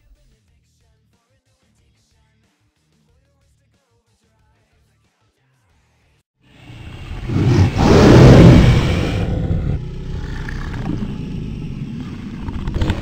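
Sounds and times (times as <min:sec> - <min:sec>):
deep noisy dragon roar: 0:06.7 - 0:12.0.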